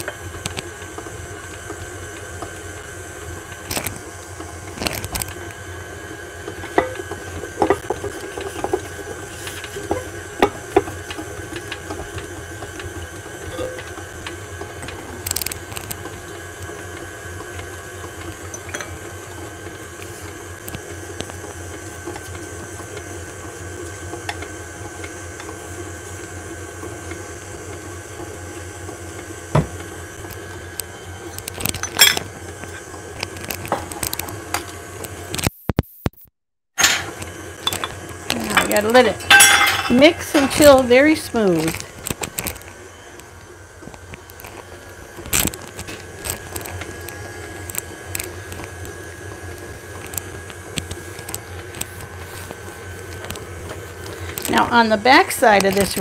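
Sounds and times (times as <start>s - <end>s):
electric stand mixer humming: 0.0s - 35.3s, 36.8s - 56.0s.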